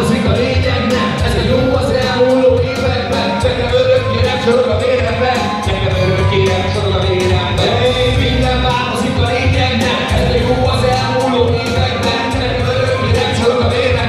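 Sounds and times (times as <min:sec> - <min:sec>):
hip-hop beat over speakers: 0:00.0 - 0:14.0
man rapping into microphone: 0:00.0 - 0:14.0.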